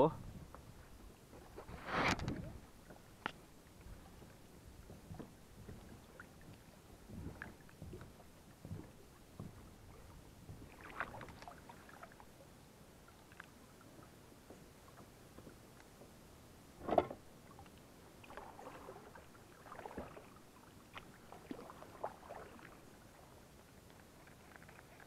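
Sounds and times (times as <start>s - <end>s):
faint water lapping: 0.0s - 25.0s
small splashes: 5.1s - 12.3s, 16.8s - 23.4s
knocks against kayak hull: 16.8s - 17.2s.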